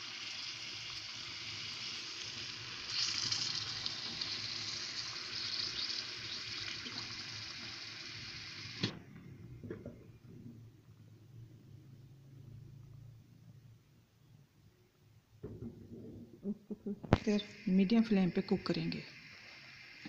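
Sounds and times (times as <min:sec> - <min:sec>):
water hissing into hot pan: 0:00.0 - 0:09.0, 0:17.2 - 0:20.0.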